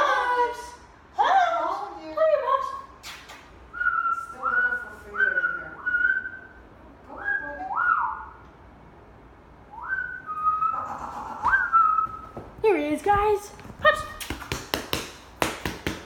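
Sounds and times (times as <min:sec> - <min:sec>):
person whistling rising notes: 0:09.7 - 0:10.9, 0:11.5 - 0:12.3.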